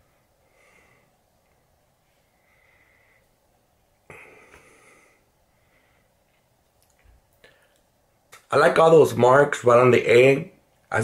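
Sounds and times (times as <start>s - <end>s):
man sniffing: 4.1s - 5.2s.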